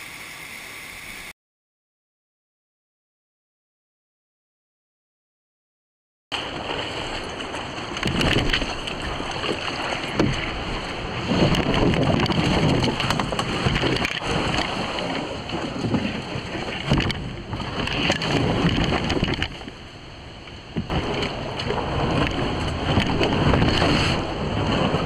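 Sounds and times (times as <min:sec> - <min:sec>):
canoe hull scraping and knocking: 0:06.4 - 0:19.8, 0:20.7 - 0:25.0.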